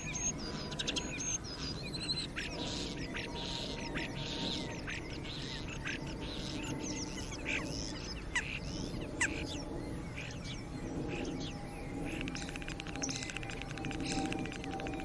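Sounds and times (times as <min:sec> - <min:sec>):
birds chirping: 0:00.0 - 0:15.0
steady low background noise: 0:00.0 - 0:15.0.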